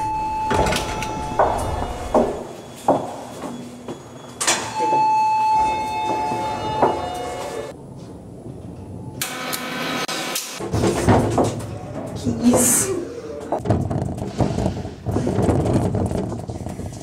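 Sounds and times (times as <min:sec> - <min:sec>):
electronic beep tone: 0:00.0 - 0:02.9
elevator clunk: 0:00.0 - 0:07.6.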